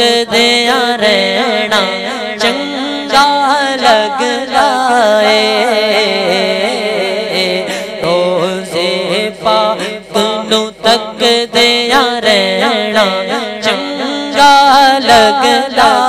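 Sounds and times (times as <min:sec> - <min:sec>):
man singing unaccompanied: 0:00.0 - 0:16.0.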